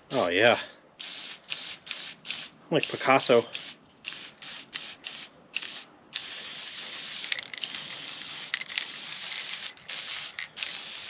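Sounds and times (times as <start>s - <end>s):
aerosol spray hissing: 1.0s - 11.0s.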